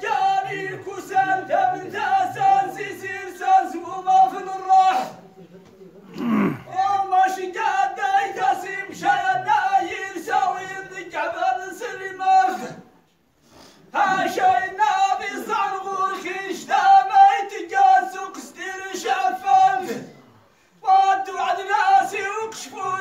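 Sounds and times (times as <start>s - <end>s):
men chanting together: 0.0s - 5.1s, 6.2s - 12.9s, 13.9s - 20.2s.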